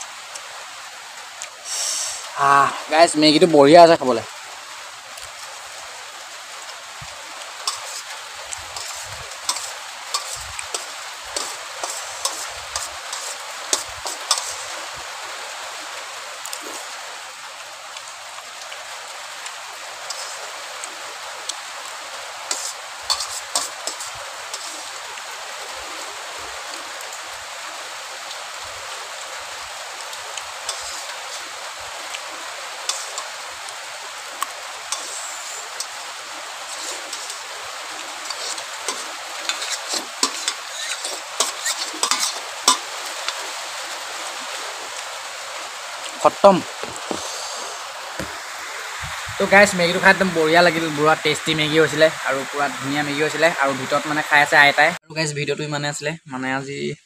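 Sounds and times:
rain hiss: 0.0 - 57.0
spoon clinking on steel plate: 38.9 - 42.8.

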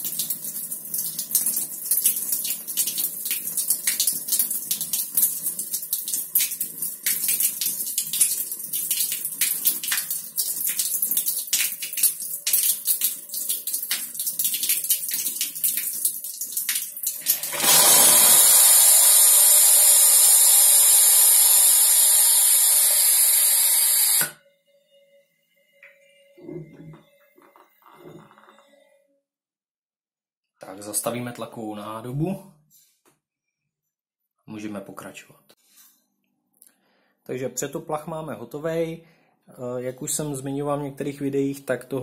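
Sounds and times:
water splashing on tiled floor: 0.0 - 17.8
gas hissing: 17.2 - 24.4.

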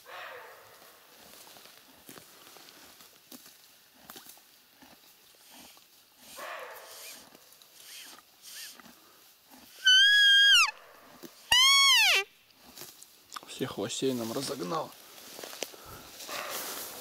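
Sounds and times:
deer calling: 9.6 - 10.8, 11.5 - 12.3.

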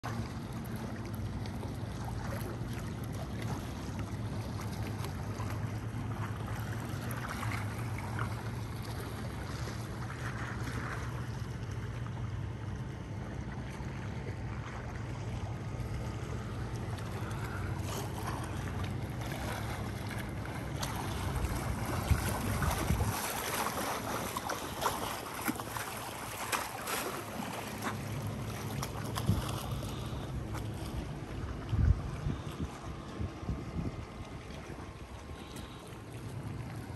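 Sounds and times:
steady low hum: 0.0 - 36.9
wind rushing across microphone: 21.9 - 23.2, 31.6 - 34.2.

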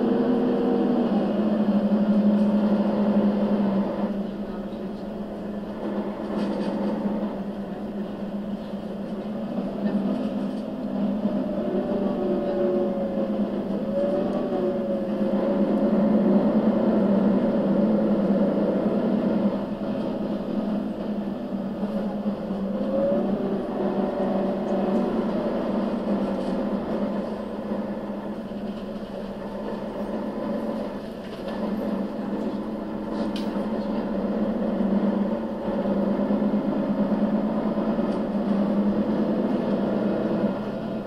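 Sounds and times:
bus diesel engine accelerating: 0.0 - 41.0.

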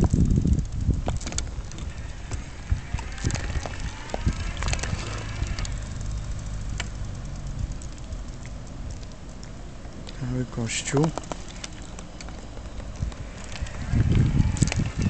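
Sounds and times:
wheelchair rolling over paving: 0.0 - 15.0.

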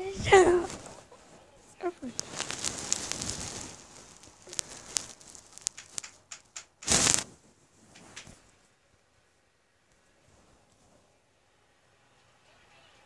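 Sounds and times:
loud rustle: 0.1 - 8.5.

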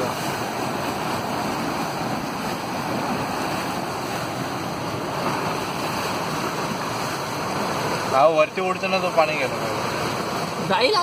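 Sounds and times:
wind on microphone: 0.0 - 8.1
churning floodwater rushing: 0.0 - 11.0
waves slapping against wall: 0.0 - 11.0.

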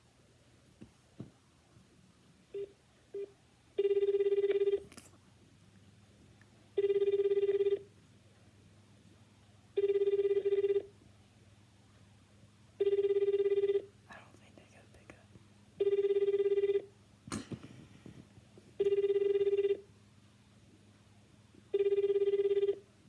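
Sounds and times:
warbling telephone ringback tone: 2.5 - 4.8, 6.8 - 7.9, 9.8 - 10.9, 12.8 - 13.9, 15.8 - 16.9, 18.8 - 19.9, 21.7 - 22.8.

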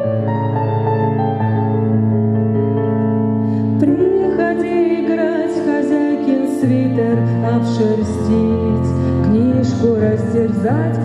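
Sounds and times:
piano chords: 0.0 - 11.0
woman singing: 3.8 - 11.0.

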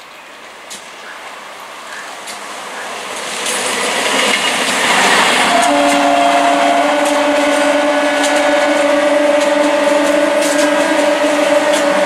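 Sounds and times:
train wheels rushing on rail: 0.0 - 12.0
train horn: 4.9 - 12.0.

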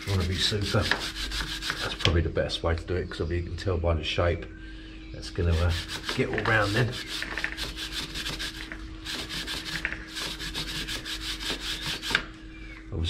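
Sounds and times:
brush scrubbing a chain: 0.0 - 2.0, 5.5 - 12.2.

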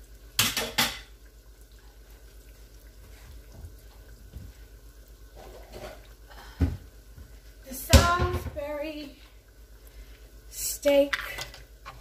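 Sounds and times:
food sizzling in hot oil: 0.0 - 3.0.

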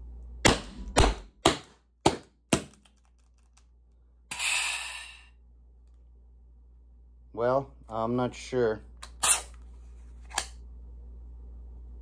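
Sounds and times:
short gas hiss: 4.3 - 5.4.

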